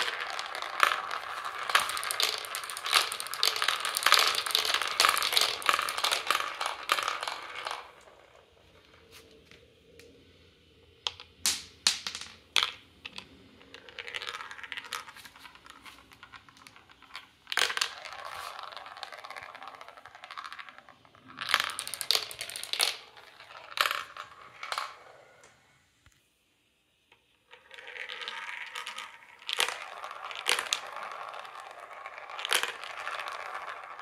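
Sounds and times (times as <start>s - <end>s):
marbles rattling around funnels: 0.0s - 9.0s, 11.1s - 25.4s, 27.5s - 34.0s
marbles clicking dropping through tubes: 0.0s - 9.1s, 11.0s - 25.6s, 27.4s - 34.0s.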